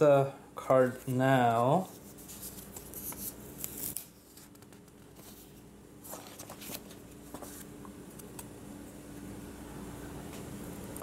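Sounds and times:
faint steady hum: 0:00.0 - 0:11.0
paper rustling: 0:00.9 - 0:08.4.

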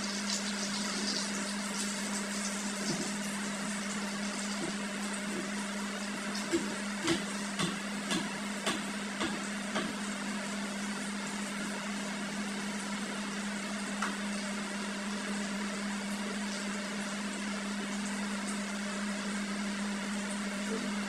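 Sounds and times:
frying hiss: 0:00.0 - 0:04.8.

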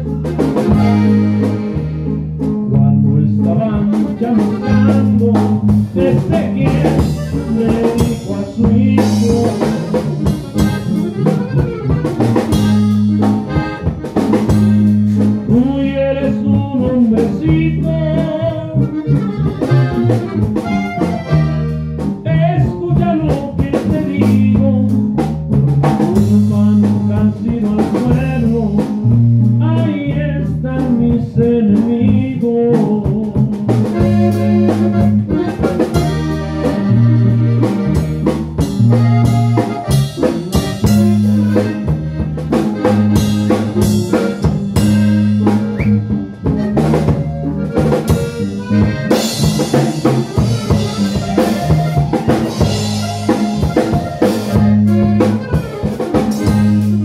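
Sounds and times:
button accordion melody: 0:00.0 - 0:57.0
drum kit beat: 0:00.0 - 0:57.0
electric bass: 0:00.0 - 0:57.0
guitar: 0:00.0 - 0:57.0
man singing: 0:02.6 - 0:10.2, 0:15.4 - 0:19.8, 0:22.2 - 0:25.2, 0:25.9 - 0:36.2.

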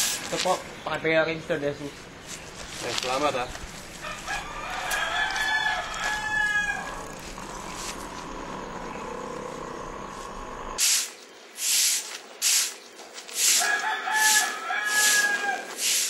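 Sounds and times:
rooster crowing: 0:04.0 - 0:09.7, 0:13.6 - 0:15.8
short bursts of hissing noise: 0:10.8 - 0:15.2, 0:15.8 - 0:16.0.

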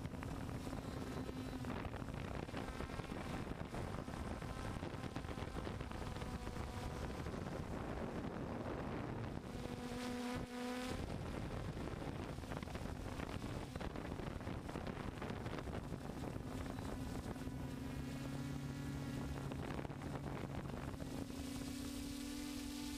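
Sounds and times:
drone motors buzzing: 0:00.0 - 0:22.9
wind on microphone: 0:00.0 - 0:22.9.

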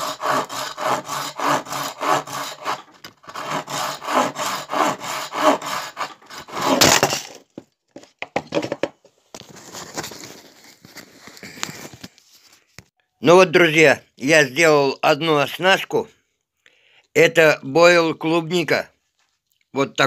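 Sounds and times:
knife sawing through bait: 0:00.0 - 0:06.9.

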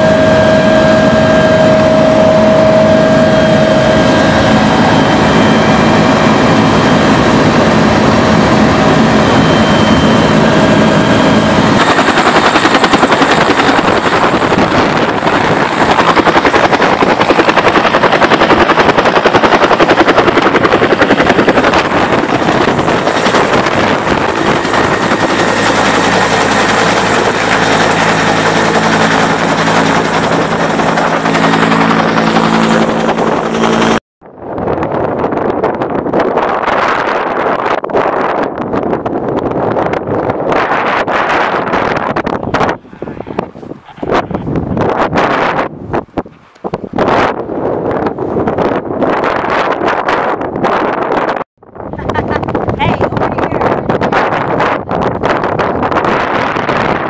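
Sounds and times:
helicopter turbine whine inside cabin: 0:00.0 - 0:42.8
helicopter rotor and engine noise: 0:00.0 - 0:57.0.

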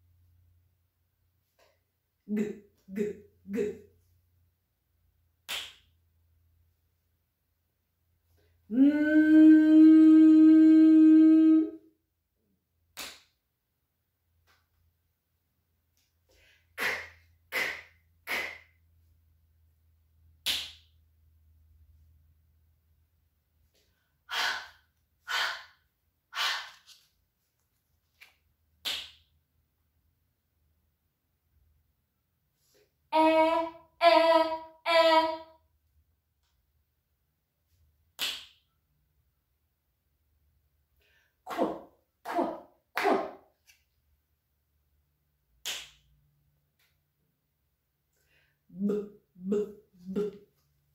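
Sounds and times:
woman saying letter sounds: 0:02.2 - 0:03.9, 0:48.7 - 0:50.5
woman saying k sound: 0:02.2 - 0:04.0, 0:33.2 - 0:35.6, 0:41.5 - 0:43.4, 0:48.7 - 0:50.5
finger snap: 0:05.4 - 0:05.9, 0:12.9 - 0:13.4, 0:16.8 - 0:18.8, 0:20.4 - 0:21.0, 0:28.2 - 0:29.3, 0:38.1 - 0:38.7, 0:45.6 - 0:46.1.

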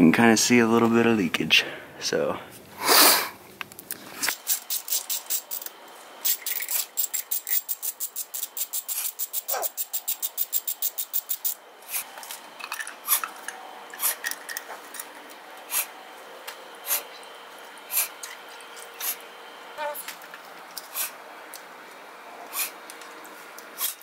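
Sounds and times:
ratchet wrench clicking: 0:04.3 - 0:11.6.

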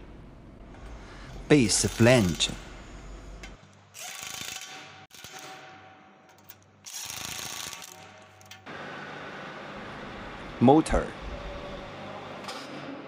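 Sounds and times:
electric impact wrench: 0:04.0 - 0:05.6, 0:06.8 - 0:08.1.

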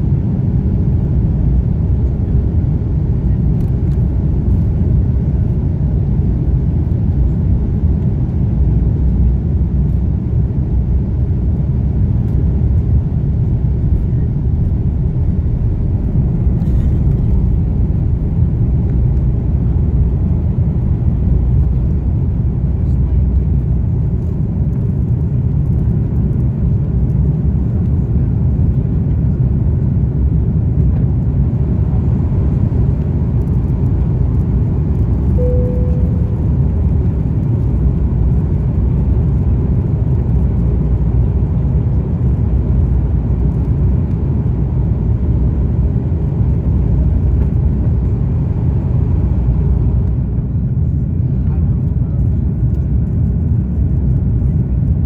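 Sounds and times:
jet engines rumbling: 0:00.0 - 0:55.0
cabin single tone: 0:35.4 - 0:36.4.

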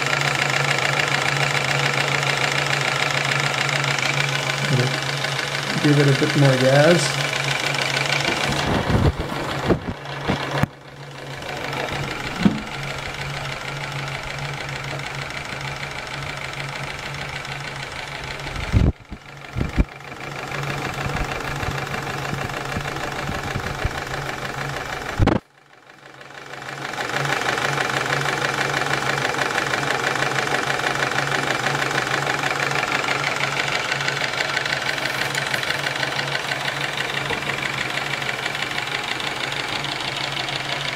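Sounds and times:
steam engine chuffing: 0:00.0 - 0:25.2, 0:26.4 - 0:40.9
sharp knocks: 0:12.3 - 0:12.7.

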